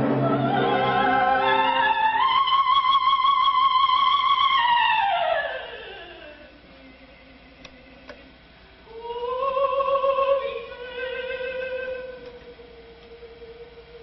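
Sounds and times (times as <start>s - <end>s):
operatic soprano singing: 0.0s - 8.3s, 8.9s - 14.0s
faint clicks: 7.6s - 8.2s.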